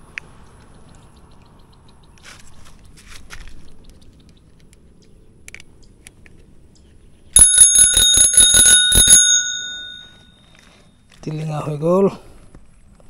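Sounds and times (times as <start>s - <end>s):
bicycle bell ringing: 7.4s - 10.9s.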